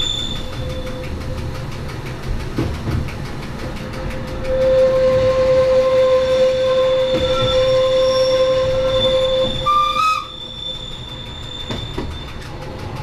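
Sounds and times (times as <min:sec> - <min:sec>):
train wheels squealing: 0:00.0 - 0:01.8, 0:04.4 - 0:12.9
train running noise: 0:00.0 - 0:13.0.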